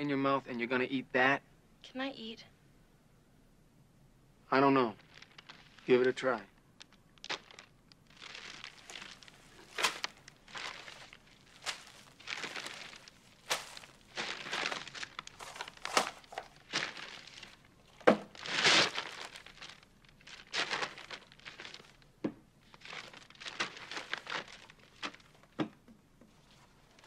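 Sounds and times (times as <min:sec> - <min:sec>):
paper bag crinkling and rustling: 0:04.6 - 0:25.6, 0:26.3 - 0:27.0.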